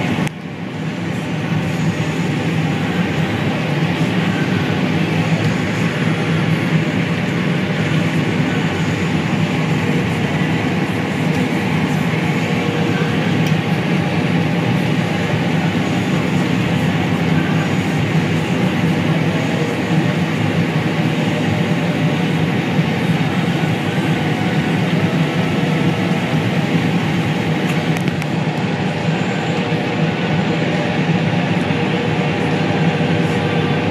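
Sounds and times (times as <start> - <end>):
combine harvester machinery drone: 0.0 - 33.9.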